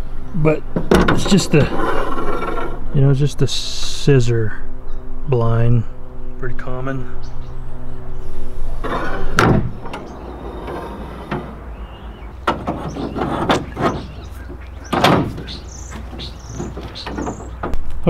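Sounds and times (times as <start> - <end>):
metal frame scraping and clanking: 1.1 - 2.8, 8.4 - 17.6.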